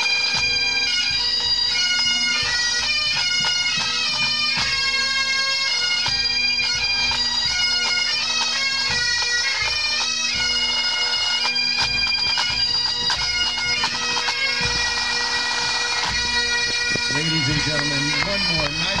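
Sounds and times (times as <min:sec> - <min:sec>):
bagpipes with drones: 0:00.0 - 0:19.0
marching drums beating: 0:10.4 - 0:19.0.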